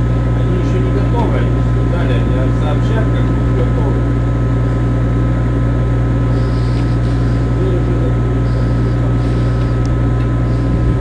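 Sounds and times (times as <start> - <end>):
ship machinery drone: 0.0 - 11.0
faint whining tones: 6.2 - 11.0.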